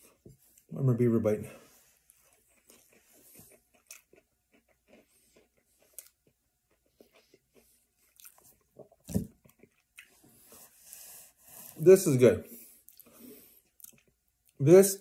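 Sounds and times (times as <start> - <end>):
person chewing: 1.9 - 11.8, 12.6 - 14.6.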